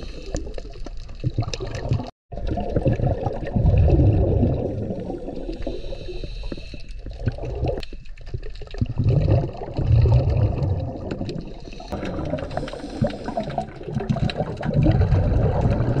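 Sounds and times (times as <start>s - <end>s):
underwater bubbles gurgling: 0.0s - 16.0s.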